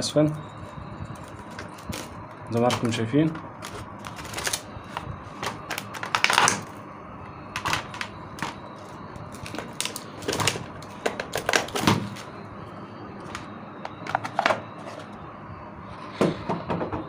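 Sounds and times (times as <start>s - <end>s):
plastic parts clicking and knocking: 7.6s - 8.6s, 9.3s - 12.3s, 13.2s - 15.0s.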